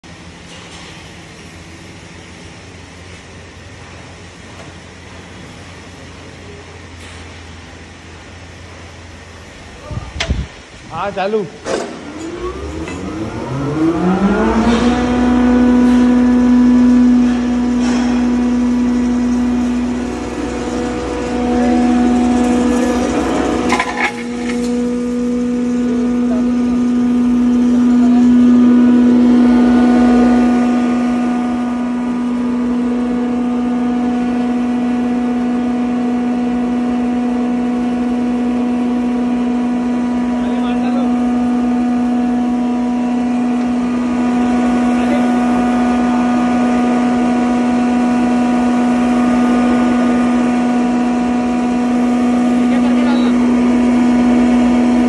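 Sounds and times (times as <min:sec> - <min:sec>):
grinder motor whining and humming: 0:11.9 - 0:55.0.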